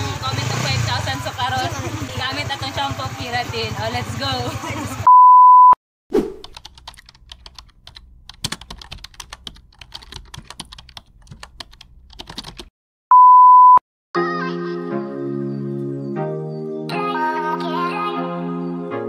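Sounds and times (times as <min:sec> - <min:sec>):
electronic beep: 0:05.1 - 0:05.8, 0:13.1 - 0:13.8
keyboard typing clicks: 0:06.4 - 0:12.7.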